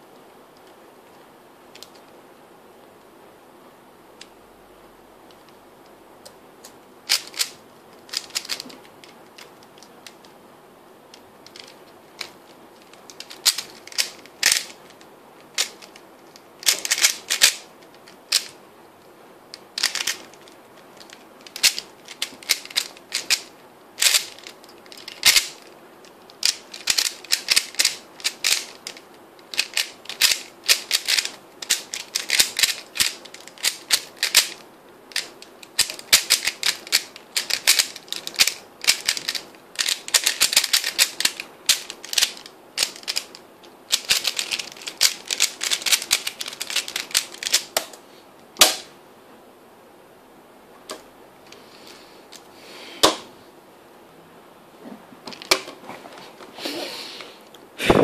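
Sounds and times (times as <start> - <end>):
plastic puzzle cube clicking: 7.1 - 10.2, 11.1 - 16.0, 16.6 - 18.6, 19.5 - 25.7, 26.3 - 48.0.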